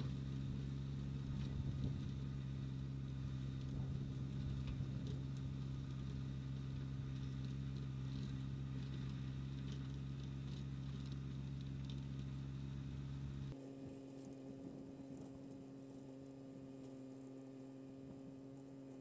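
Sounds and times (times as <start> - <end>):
distant tractor engine hum: 0.0 - 19.0.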